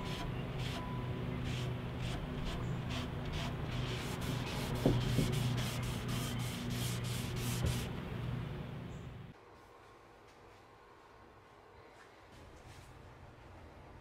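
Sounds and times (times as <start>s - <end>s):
low steady hum: 0.0s - 14.0s
cloth rubbing on wooden shelf: 1.5s - 7.9s.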